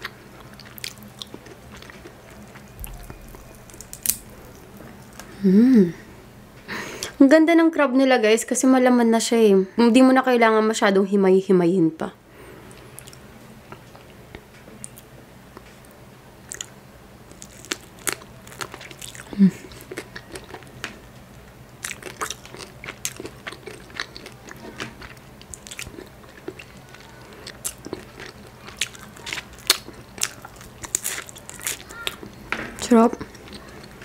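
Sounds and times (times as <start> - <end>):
person chewing and biting crab: 0.0 - 5.3, 16.5 - 20.9, 21.8 - 32.4
low hum: 1.0 - 7.2.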